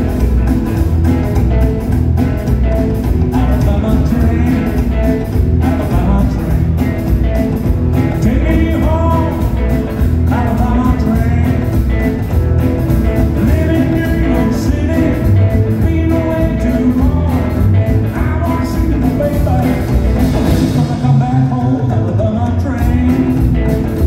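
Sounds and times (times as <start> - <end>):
drum kit: 0.0 - 24.0
electric guitar: 0.0 - 24.0
upright double bass: 0.0 - 24.0
man singing: 3.2 - 7.3, 8.0 - 12.2, 13.2 - 24.0.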